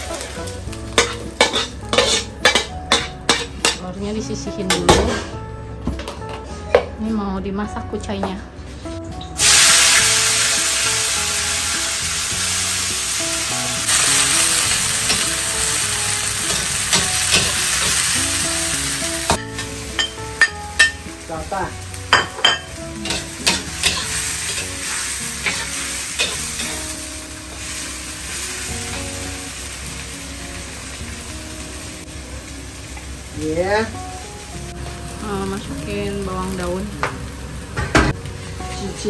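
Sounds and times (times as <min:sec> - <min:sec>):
food sizzling in hot oil: 0:00.0 - 0:03.8, 0:09.4 - 0:39.0
metal spatula scraping wok: 0:00.9 - 0:03.8, 0:23.0 - 0:26.9.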